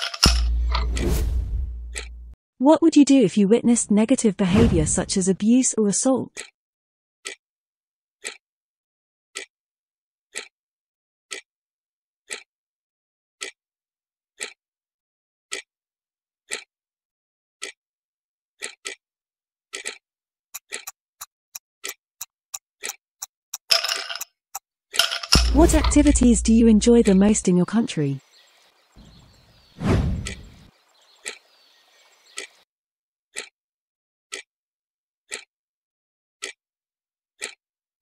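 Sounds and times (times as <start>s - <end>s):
clock ticking: 1.8s - 2.4s, 20.6s - 24.3s, 25.0s - 27.8s, 37.4s - 37.6s.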